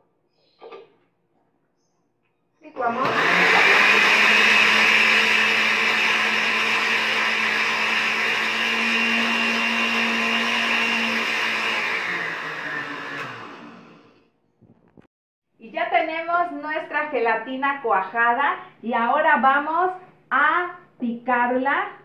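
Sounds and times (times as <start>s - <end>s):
electric blender running: 2.8s - 14.2s.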